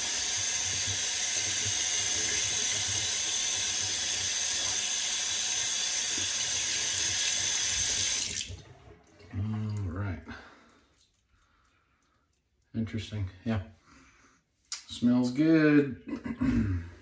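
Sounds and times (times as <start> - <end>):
tin being rinsed: 0.0 - 9.4.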